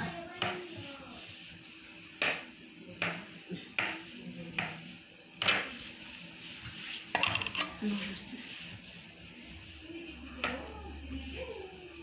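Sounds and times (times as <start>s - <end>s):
knife tapping on cutting board: 3.0s - 3.2s, 3.8s - 4.0s, 4.6s - 4.8s.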